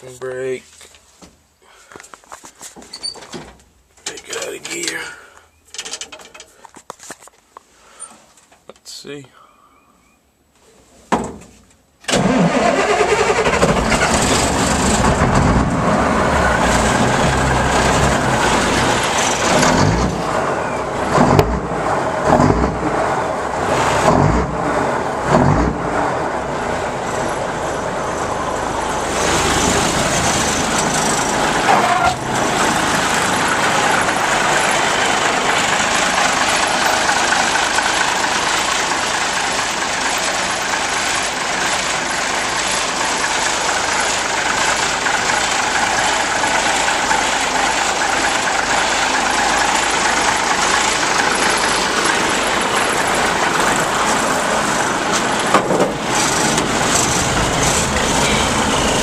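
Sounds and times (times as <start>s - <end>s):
diesel engine starting and running: 12.0s - 59.0s.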